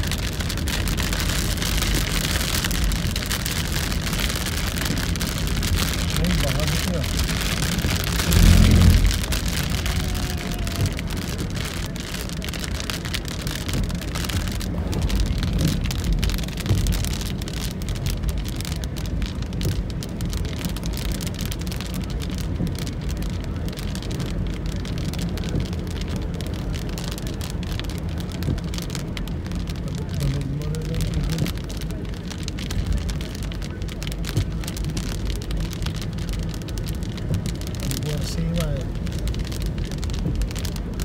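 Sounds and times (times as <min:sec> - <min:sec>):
car rumble and tyres on wet road: 0:00.0 - 0:41.0
heavy rain on a car: 0:00.0 - 0:41.0
low thump: 0:08.1 - 0:09.7.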